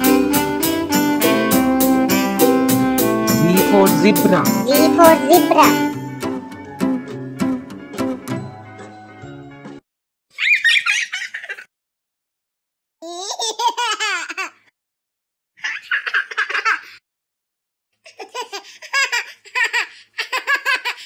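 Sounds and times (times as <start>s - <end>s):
young child giggling: 10.4s - 11.7s, 15.6s - 17.0s.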